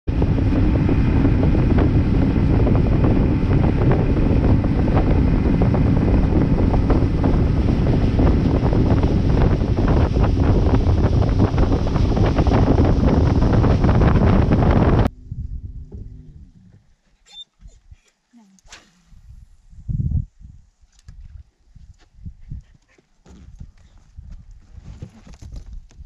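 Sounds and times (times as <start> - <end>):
outboard motor hum: 0.0 - 17.0
wind buffeting microphone: 0.0 - 17.0, 18.7 - 26.0
water rushing along hull: 0.1 - 15.1.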